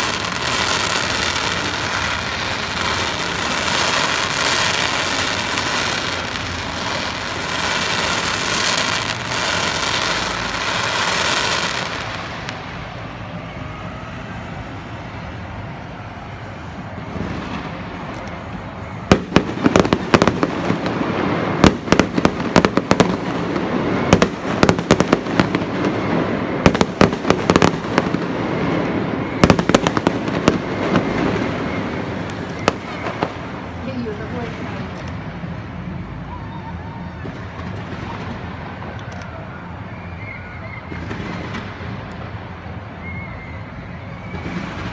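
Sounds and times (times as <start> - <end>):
fireworks hissing: 0.0 - 13.4
fireworks bangs and cracks: 0.0 - 14.2, 15.0 - 42.9, 44.1 - 44.9.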